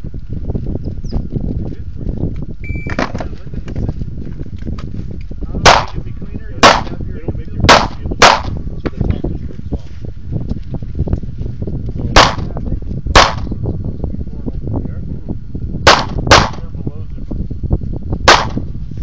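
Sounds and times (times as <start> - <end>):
shot timer beep: 2.6 - 3.0
pistol shots: 5.6 - 6.0, 6.6 - 7.0, 7.7 - 8.6, 12.2 - 12.5, 13.2 - 13.5, 15.9 - 16.6, 18.3 - 18.7.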